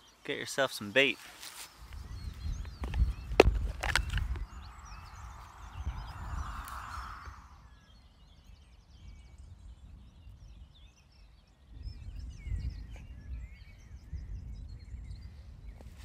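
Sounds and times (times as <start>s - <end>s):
small birds chirping: 0.0s - 16.0s
low rumble: 4.2s - 7.8s.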